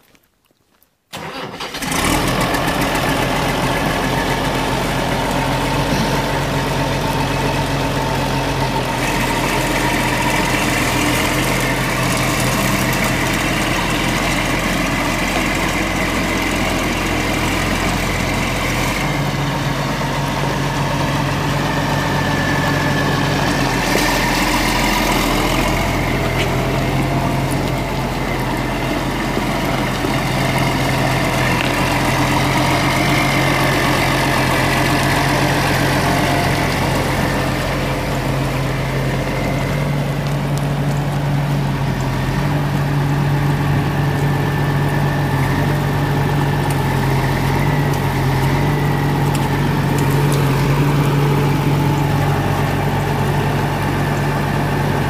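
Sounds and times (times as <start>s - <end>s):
diesel tractor engine cranking: 1.1s - 55.0s
diesel tractor engine idling: 1.1s - 55.0s.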